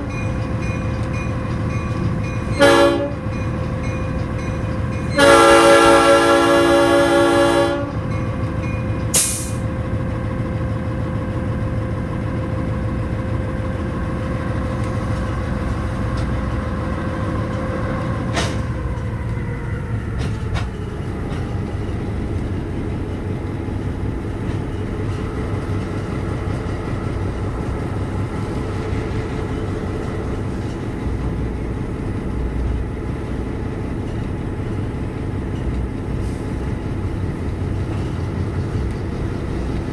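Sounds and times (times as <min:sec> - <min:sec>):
locomotive horn blast: 0:02.5 - 0:03.4, 0:05.1 - 0:08.1.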